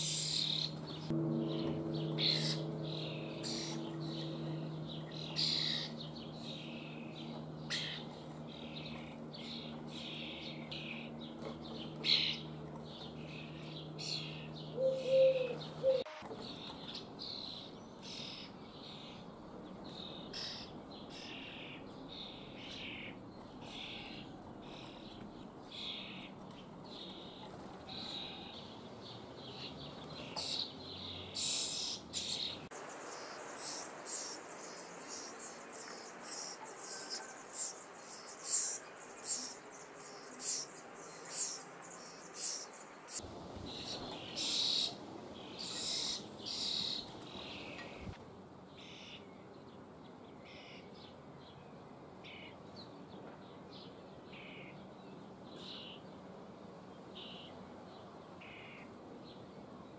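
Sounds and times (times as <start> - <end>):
steady low hum: 0.0 - 16.0
young birds begging calls: 0.0 - 18.6, 30.2 - 48.2.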